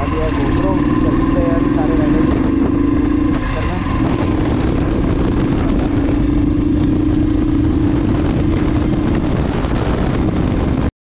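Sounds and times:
motorcycle engine running: 0.0s - 10.9s
wind noise on microphone: 0.0s - 10.9s.

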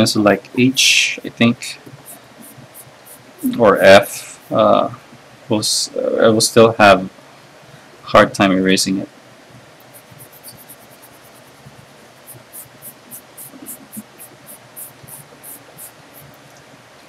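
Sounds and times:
eraser rubbing on paper: 1.9s - 4.2s, 9.8s - 16.4s.

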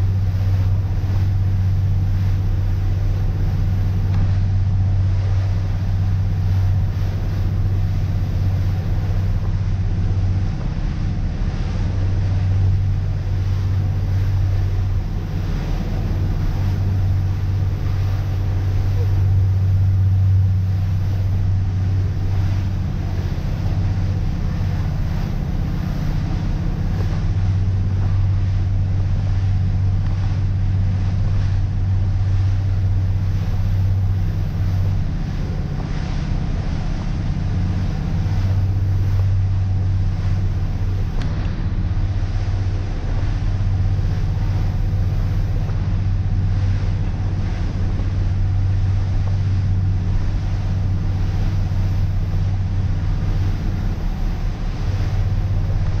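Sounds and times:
boat engine drone: 0.0s - 56.0s
wind and water rushing: 0.0s - 56.0s.

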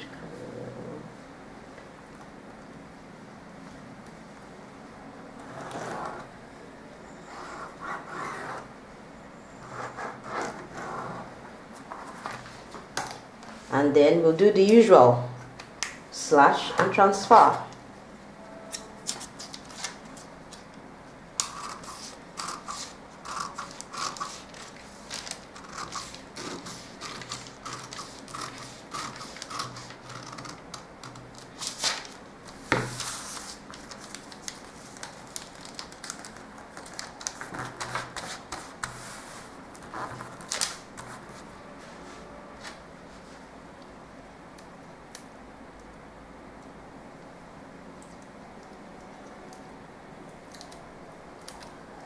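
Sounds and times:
paper crinkling and rustling: 19.0s - 20.7s, 21.4s - 41.5s
scissors snipping paper: 21.4s - 32.1s.

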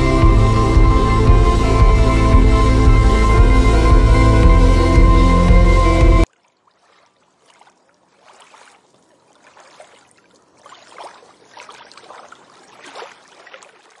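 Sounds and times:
small waves lapping: 6.2s - 14.0s.

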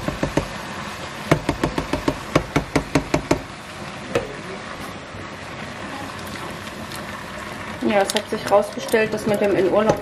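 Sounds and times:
sharp knocks on steel pot: 0.0s - 0.5s, 1.3s - 3.5s.

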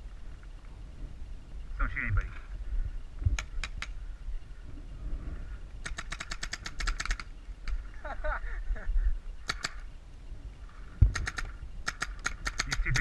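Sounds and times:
paintball marker firing pops: 5.8s - 7.8s, 11.0s - 13.0s.

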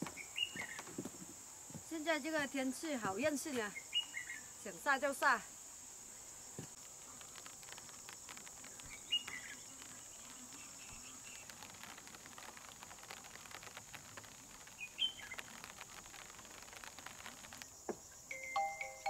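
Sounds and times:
raindrops ticking: 6.5s - 18.0s.

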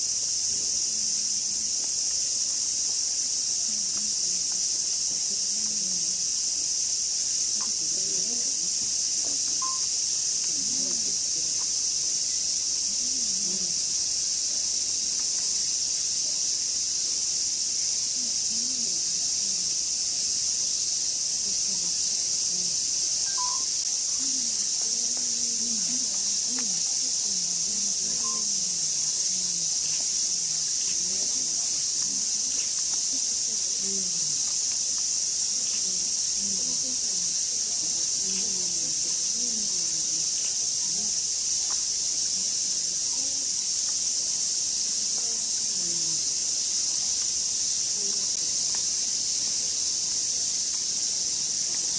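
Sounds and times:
cicadas droning: 0.0s - 51.9s.

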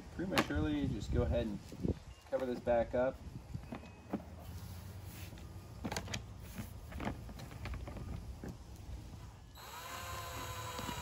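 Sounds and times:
cordless drill whining: 9.5s - 11.0s.

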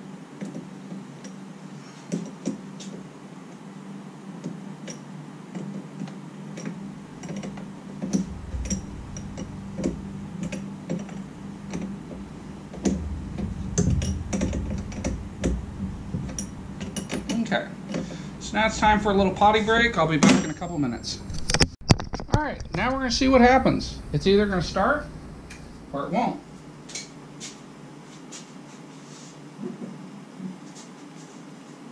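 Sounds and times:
steady low hum: 6.8s - 21.6s, 22.6s - 29.0s.

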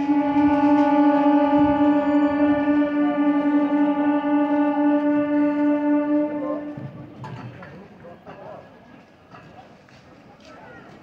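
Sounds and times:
train horn blast: 0.0s - 7.4s.

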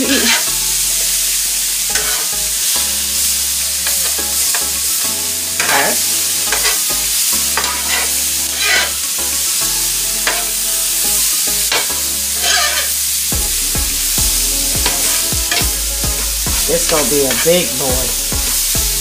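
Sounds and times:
metal spatula scraping griddle: 0.0s - 0.5s, 1.9s - 2.3s, 5.6s - 6.9s, 7.5s - 9.1s, 10.2s - 10.6s, 11.7s - 13.0s, 14.8s - 15.6s
food sizzling: 0.0s - 19.0s.

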